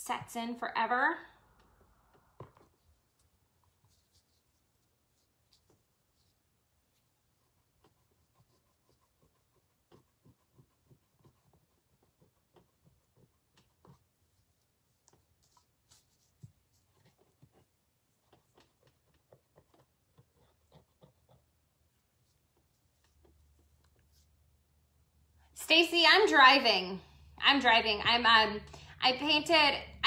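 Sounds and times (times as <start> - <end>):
scratchy rubbing on shoe sole: 2.6 - 24.4.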